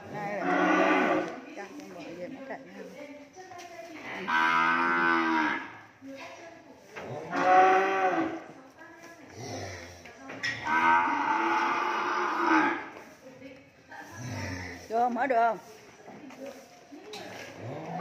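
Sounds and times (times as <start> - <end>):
cattle mooing: 0.1 - 1.4, 4.2 - 5.8, 7.3 - 8.4, 10.6 - 13.0.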